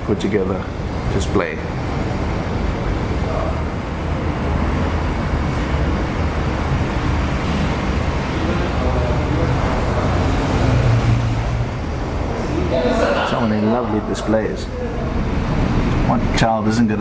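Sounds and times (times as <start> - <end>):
faint voices: 0.0 - 17.0
indoor room rumble and hiss: 0.0 - 17.0.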